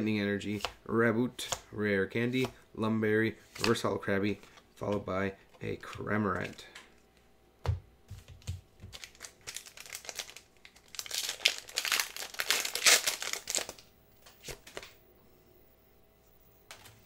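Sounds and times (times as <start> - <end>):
foil wrapper crinkling: 8.9 - 14.8.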